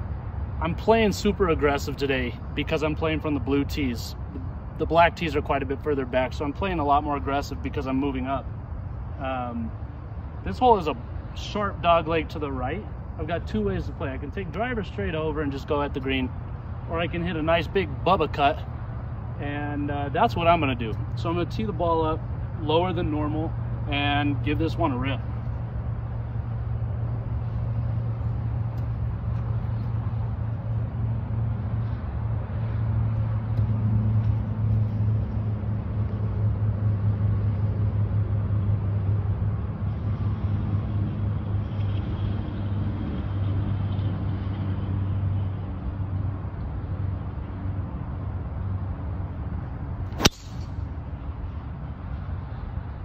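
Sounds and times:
steady low hum: 0.0s - 40.6s, 44.7s - 53.0s
golf club striking ball: 50.1s - 50.9s.

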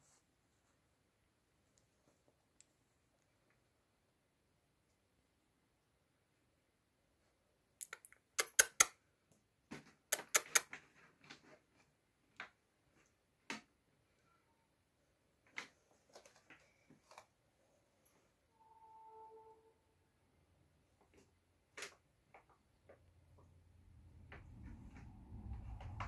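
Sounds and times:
sharp clicks and taps: 7.8s - 9.0s, 10.1s - 10.8s.

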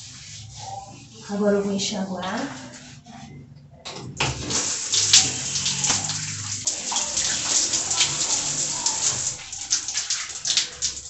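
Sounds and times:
shower water spraying: 0.0s - 3.0s, 4.2s - 11.0s.

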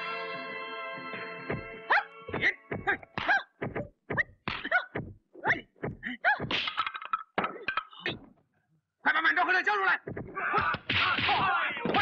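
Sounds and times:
punch and kick whacks: 2.3s - 5.2s, 10.1s - 12.0s
fighters shouting: 10.3s - 12.0s.

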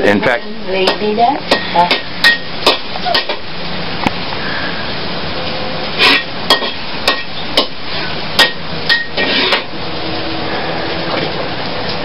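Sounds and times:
onions sizzling in oil: 0.0s - 12.0s
metal spatula clanking on wok: 0.8s - 3.4s, 6.0s - 7.8s, 8.4s - 9.7s.

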